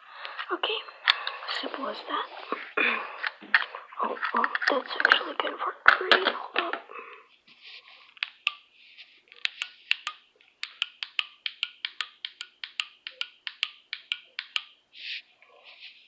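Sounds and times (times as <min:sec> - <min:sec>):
small sharp clicks: 0:09.4 - 0:14.7.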